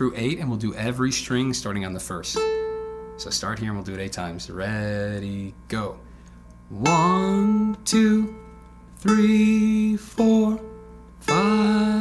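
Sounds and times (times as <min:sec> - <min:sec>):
man singing: 0:04.3 - 0:06.0, 0:06.7 - 0:12.0.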